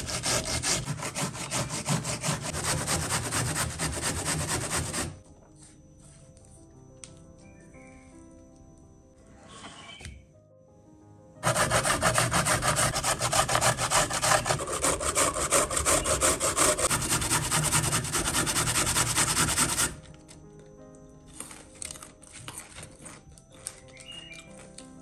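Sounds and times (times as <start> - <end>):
carrot rasping on a grater: 0.0 - 5.2, 11.4 - 20.0.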